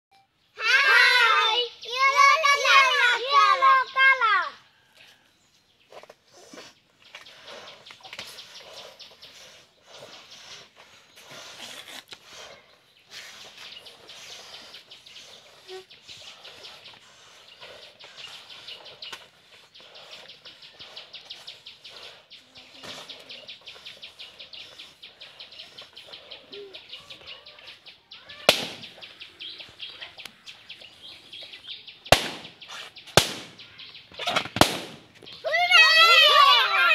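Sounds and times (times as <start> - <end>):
rapid high ticking or chirping: 6.3 - 34.4
balloons popping: 28.4 - 29.0, 32.1 - 35.2.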